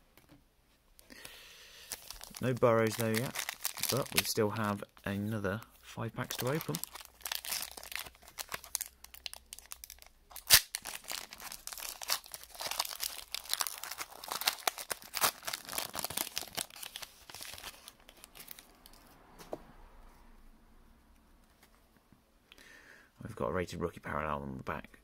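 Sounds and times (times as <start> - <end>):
foil wrapper tearing and crinkling: 1.8 - 4.5, 6.2 - 19.0
sharp crack: 10.3 - 11.1.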